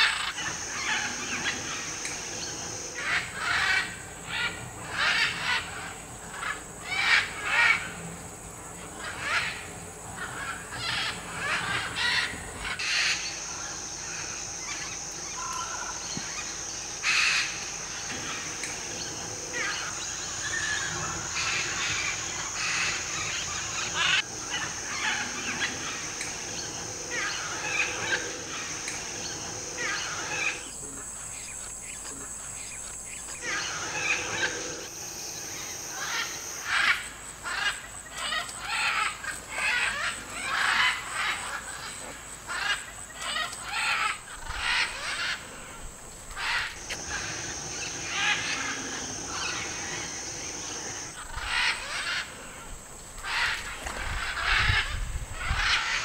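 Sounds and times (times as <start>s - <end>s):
high insect drone: 0.0s - 56.0s
parakeets chattering: 8.9s - 45.4s, 46.3s - 52.3s, 53.2s - 56.0s
macaws squawking: 35.8s - 56.0s.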